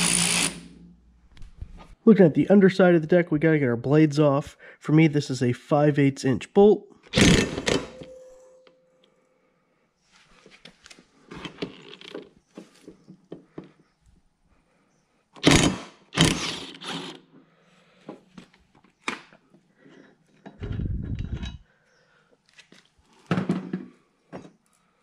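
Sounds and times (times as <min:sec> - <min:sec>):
impact wrench hammering: 0:07.1 - 0:08.8.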